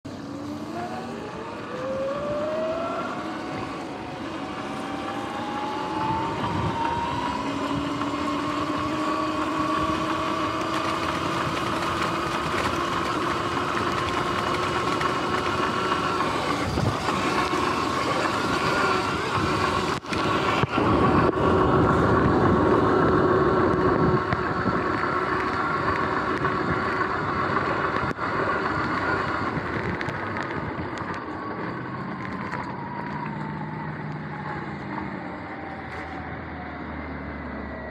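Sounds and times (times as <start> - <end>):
tyres and wind rushing: 0.0 - 37.9
electric motor whining: 0.1 - 36.6.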